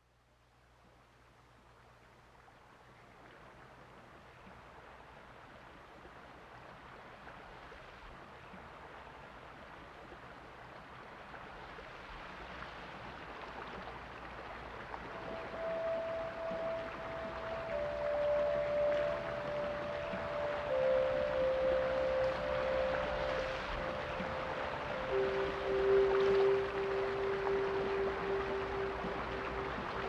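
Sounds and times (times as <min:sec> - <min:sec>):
faint low hum: 0:00.0 - 0:30.0
rushing water: 0:02.4 - 0:30.0
held musical tone: 0:15.1 - 0:30.0.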